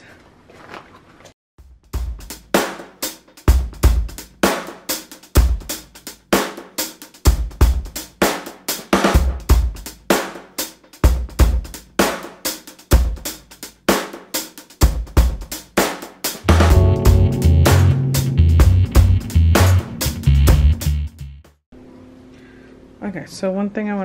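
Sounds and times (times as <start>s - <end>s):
drum kit beat: 1.6s - 21.5s.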